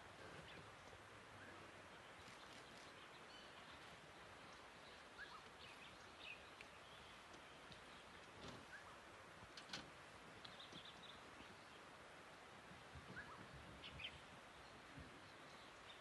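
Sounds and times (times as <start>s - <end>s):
steady low hiss: 0.0s - 16.0s
faint bird chirps: 1.4s - 9.0s, 13.1s - 16.0s.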